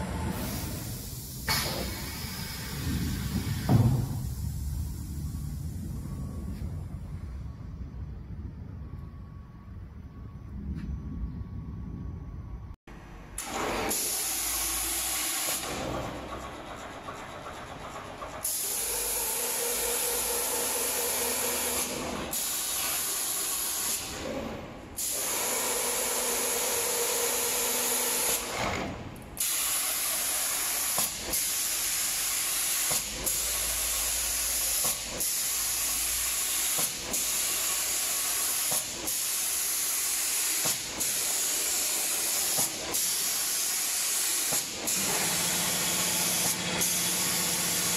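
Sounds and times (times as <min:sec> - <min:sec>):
paint spray gun hissing: 0:29.4 - 0:47.9.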